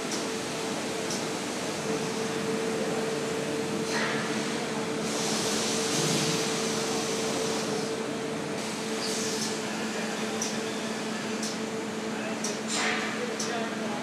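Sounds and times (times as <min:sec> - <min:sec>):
machinery humming: 0:00.0 - 0:14.0.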